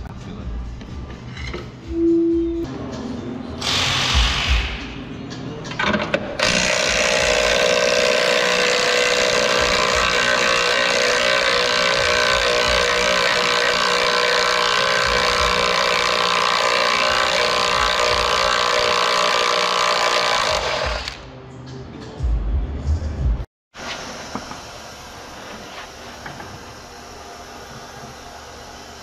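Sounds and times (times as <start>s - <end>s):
high-pitched air tool running: 3.6s - 4.8s, 6.4s - 21.2s.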